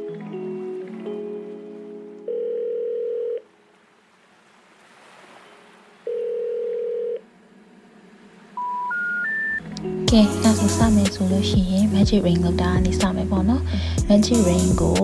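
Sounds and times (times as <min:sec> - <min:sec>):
telephone ringing tones: 0:02.3 - 0:03.5, 0:06.1 - 0:07.2
short rising beeps: 0:08.6 - 0:09.6
marimba-like music: 0:09.6 - 0:15.0.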